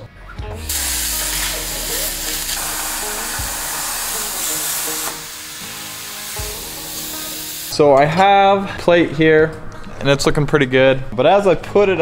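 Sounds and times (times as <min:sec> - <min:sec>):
background music: 0:00.0 - 0:10.1
plasma torch hissing: 0:00.6 - 0:07.7.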